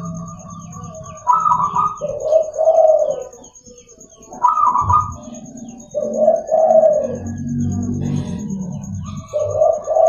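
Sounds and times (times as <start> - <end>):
dove cooing: 0.0 - 10.0.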